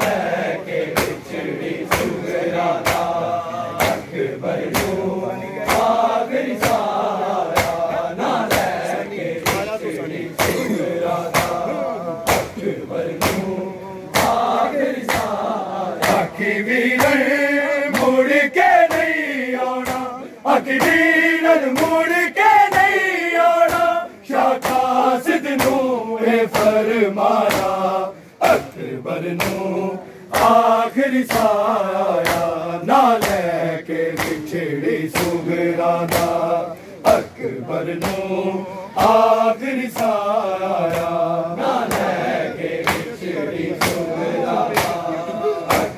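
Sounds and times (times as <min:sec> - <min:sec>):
men chanting a lament: 0:00.0 - 0:45.9
hand slaps on chest: 0:01.9 - 0:02.2, 0:02.8 - 0:03.2, 0:03.8 - 0:04.0, 0:04.7 - 0:05.0, 0:05.7 - 0:06.0, 0:07.5 - 0:07.9, 0:08.5 - 0:08.8, 0:11.3 - 0:11.6, 0:12.2 - 0:12.6, 0:13.2 - 0:13.5, 0:14.1 - 0:14.5, 0:16.0 - 0:16.3, 0:25.6 - 0:25.8, 0:29.4 - 0:29.6, 0:30.3 - 0:30.6, 0:32.2 - 0:32.5, 0:33.2 - 0:33.5, 0:34.1 - 0:34.4, 0:35.1 - 0:35.4, 0:36.0 - 0:36.4, 0:41.8 - 0:42.2, 0:42.8 - 0:43.1, 0:43.8 - 0:44.0, 0:44.7 - 0:45.0.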